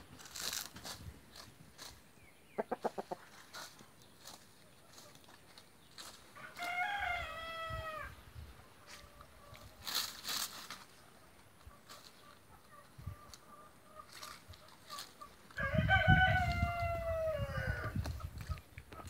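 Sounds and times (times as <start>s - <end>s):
rooster crowing: 6.4s - 8.1s, 15.6s - 18.0s.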